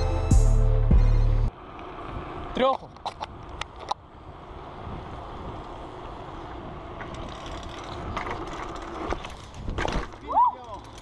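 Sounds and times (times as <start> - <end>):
bike tyres rolling on asphalt: 1.5 - 11.0
bike clicks: 1.6 - 4.1, 5.4 - 11.0.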